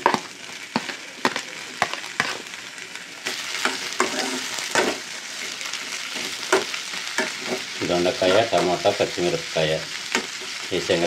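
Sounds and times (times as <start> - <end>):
vegetables sizzling in oil: 0.0 - 11.0
metal utensil scraping a pan: 3.6 - 5.0, 6.3 - 8.9.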